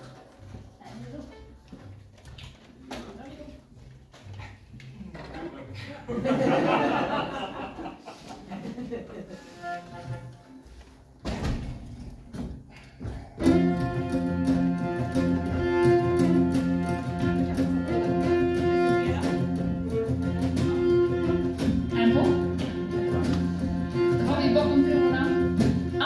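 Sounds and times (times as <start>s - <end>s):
fiddles playing folk music: 9.2s - 11.0s, 13.4s - 26.0s.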